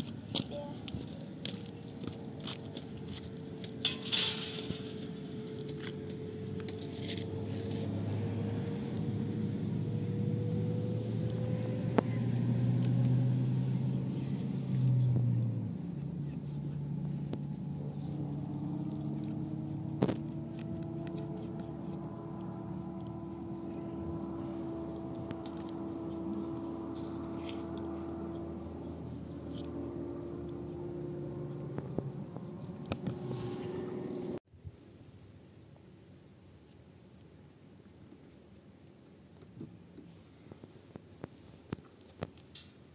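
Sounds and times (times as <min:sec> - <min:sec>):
motor engine drone: 0:01.4 - 0:34.4.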